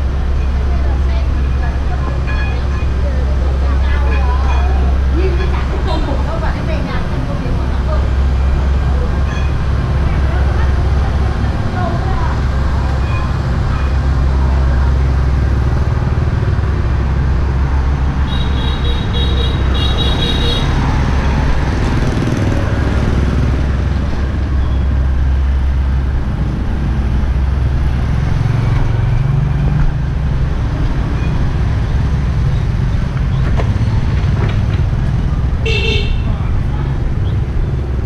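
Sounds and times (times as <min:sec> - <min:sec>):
low traffic rumble: 0:00.0 - 0:38.0
high horn beeps: 0:18.2 - 0:21.4, 0:35.7 - 0:36.3.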